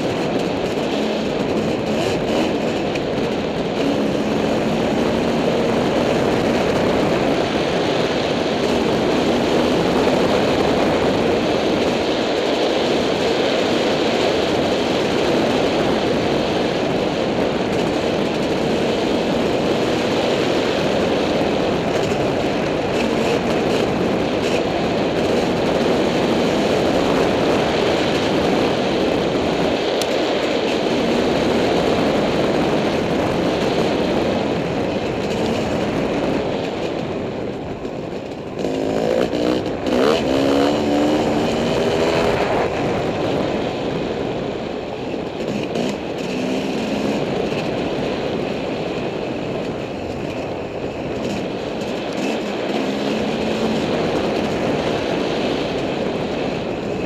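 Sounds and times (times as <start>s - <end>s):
dirt bike engine running: 0.0s - 57.0s.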